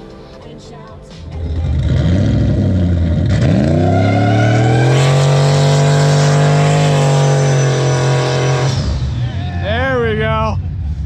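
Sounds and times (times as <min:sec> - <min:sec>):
tyres spinning on asphalt: 0:01.4 - 0:09.2
truck engine revving high: 0:01.4 - 0:11.0.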